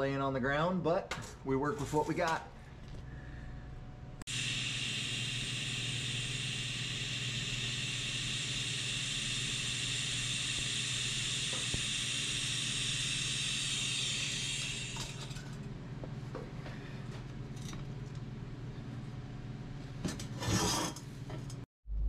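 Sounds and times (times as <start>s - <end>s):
heater hissing and humming: 2.3s - 19.8s.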